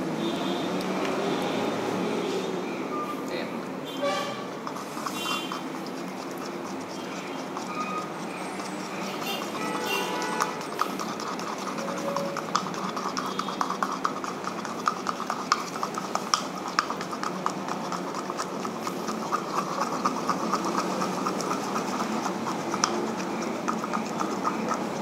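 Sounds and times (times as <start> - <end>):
stick tapping plastic cup: 4.6 - 18.7.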